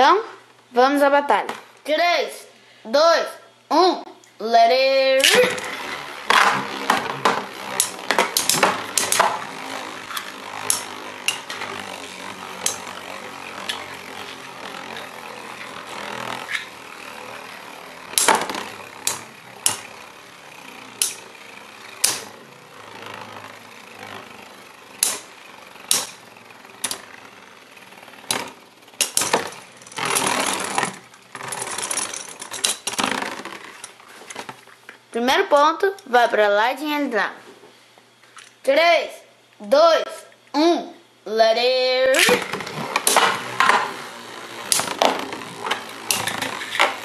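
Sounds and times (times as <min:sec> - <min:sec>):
spinning tops whirring: 0:04.7 - 0:35.2, 0:41.6 - 0:47.0
spinning tops clacking together: 0:05.2 - 0:34.5, 0:42.1 - 0:47.0.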